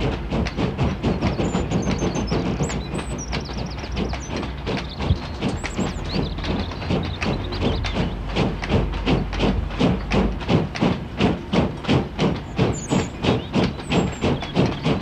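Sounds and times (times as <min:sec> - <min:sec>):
steam locomotive exhaust beats: 0:00.0 - 0:15.0.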